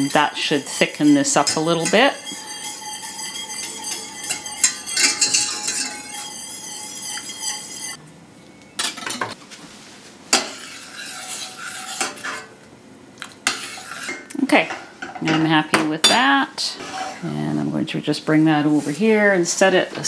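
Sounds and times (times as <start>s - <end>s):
spoon stirring: 0.0s - 8.0s, 10.4s - 12.5s, 13.2s - 14.3s
whisk scraping a metal saucepan: 0.0s - 8.0s, 10.3s - 12.5s, 13.4s - 14.3s, 16.0s - 17.4s.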